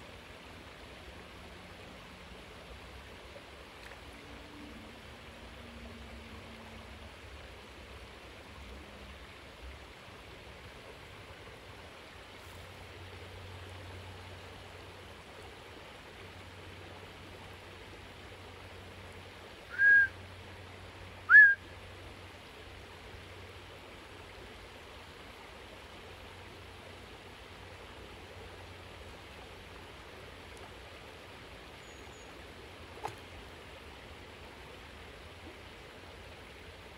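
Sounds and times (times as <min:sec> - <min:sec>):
creek water rushing: 0:00.0 - 0:36.9
short loud whistles: 0:19.7 - 0:20.2, 0:21.3 - 0:21.6.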